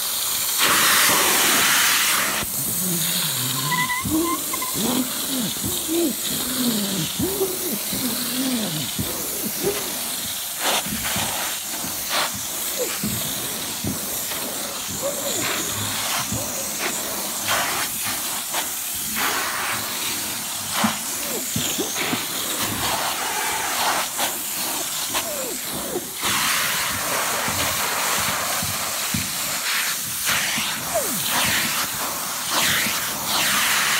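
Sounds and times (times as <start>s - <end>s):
spray and vacuum suction hiss: 0.0s - 33.9s
squeaks and slurps on fabric: 2.6s - 10.0s.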